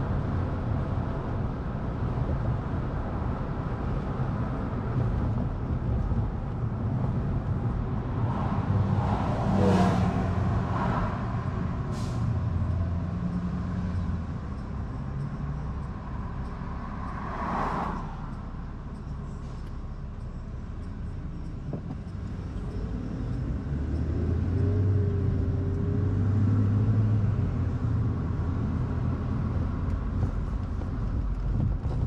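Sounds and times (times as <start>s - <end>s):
road and engine rumble: 0.0s - 32.0s
passing whoosh: 7.9s - 11.7s.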